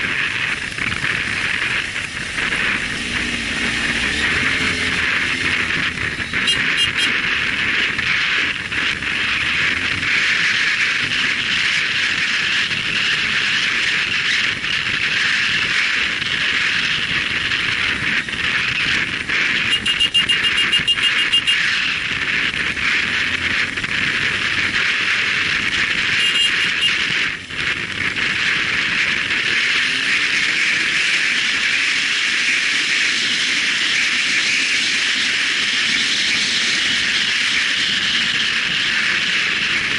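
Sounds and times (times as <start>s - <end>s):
motorcycle engine: 0.0s - 39.9s
wind rushing over microphone: 0.0s - 39.9s
rapid high-pitched ticking: 19.6s - 21.6s, 25.9s - 27.2s.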